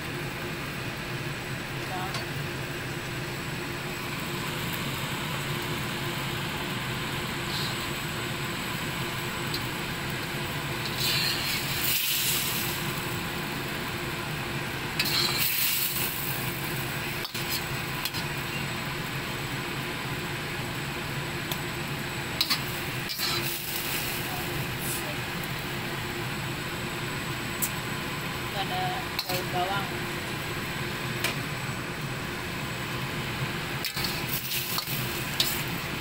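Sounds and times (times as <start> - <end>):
steady background hum: 0.0 - 36.0
spatula scraping in a wok: 7.5 - 7.8, 10.8 - 12.8, 15.0 - 16.4, 17.2 - 18.7, 22.4 - 25.1, 33.8 - 35.9.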